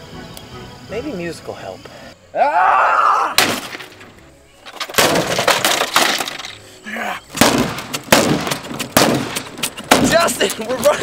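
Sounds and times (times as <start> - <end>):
television being smashed: 3.4 - 4.1, 4.8 - 6.6, 7.4 - 10.4
rattling debris: 3.4 - 6.6.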